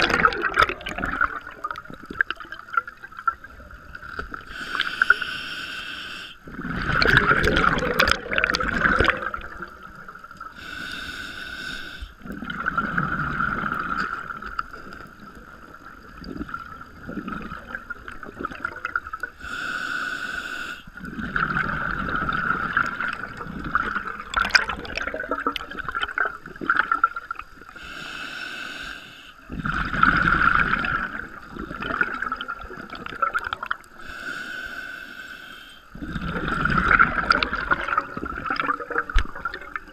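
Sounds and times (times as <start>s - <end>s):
exhaled air bubbling: 0.0s - 5.4s, 6.3s - 19.7s, 20.8s - 28.0s, 29.4s - 34.2s, 35.9s - 39.9s
scuba regulator inhale hiss: 4.5s - 6.4s, 10.6s - 12.2s, 19.4s - 21.0s, 27.7s - 29.4s, 33.9s - 35.9s.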